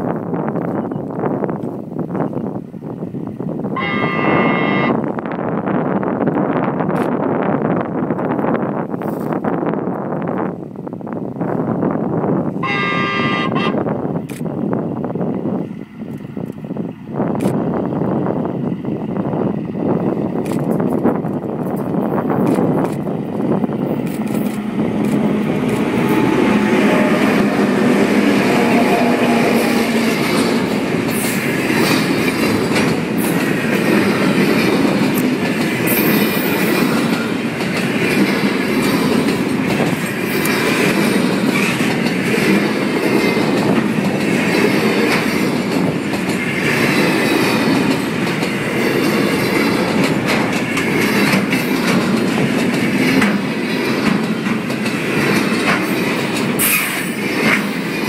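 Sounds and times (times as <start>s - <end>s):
locomotive engines humming: 12.5s - 58.0s
freight wagons rumbling: 14.9s - 58.0s
wheels clacking over rails: 20.5s - 58.0s.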